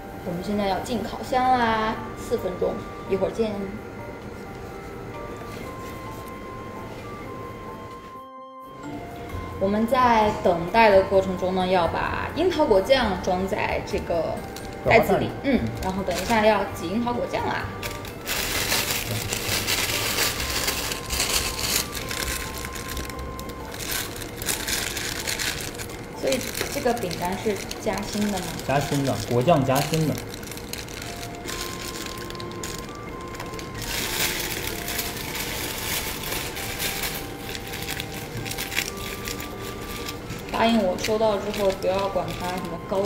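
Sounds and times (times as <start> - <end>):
plastic piping bag crinkling: 15.6 - 16.8, 17.7 - 43.0.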